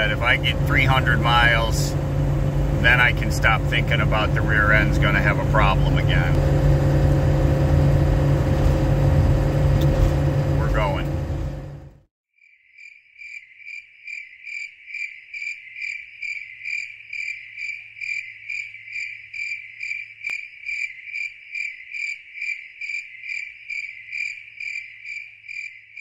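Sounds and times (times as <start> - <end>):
cricket chirping: 12.4 - 26.0.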